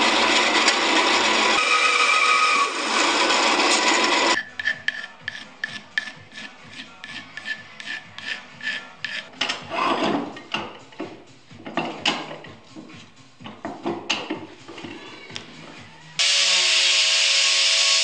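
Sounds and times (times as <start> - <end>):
band saw cutting wood: 0.0 - 9.3, 16.2 - 18.0
wood block rubbing scrape: 1.6 - 11.1.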